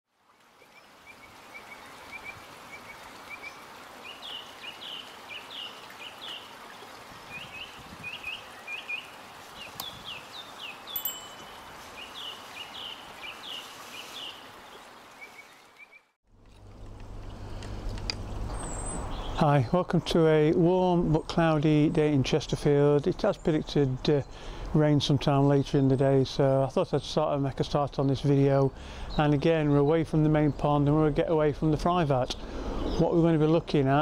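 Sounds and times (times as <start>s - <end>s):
running water: 0.1s - 24.6s
small birds chirping: 0.7s - 16.1s, 17.3s - 20.2s.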